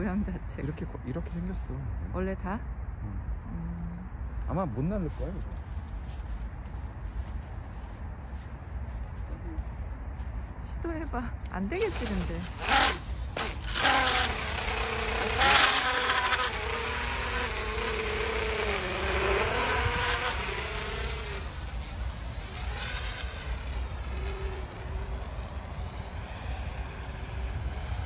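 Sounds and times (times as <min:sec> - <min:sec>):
drone propellers buzzing whine: 0:05.8 - 0:28.0.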